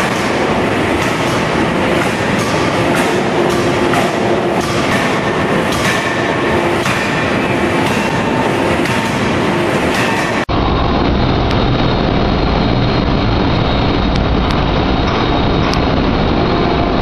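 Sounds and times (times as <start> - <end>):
forging hammer blows: 0.0 - 10.6
loud machinery noise: 0.0 - 17.0.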